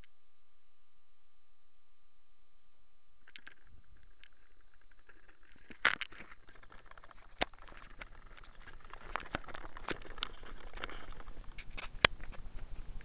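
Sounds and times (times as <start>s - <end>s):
plastic clicks: 3.3s - 12.9s
fingers rubbing on plastic: 4.2s - 13.0s.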